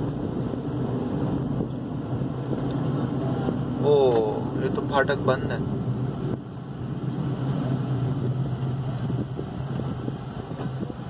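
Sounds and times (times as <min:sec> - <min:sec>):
car engine hum: 0:00.0 - 0:11.0
road noise: 0:00.0 - 0:11.0.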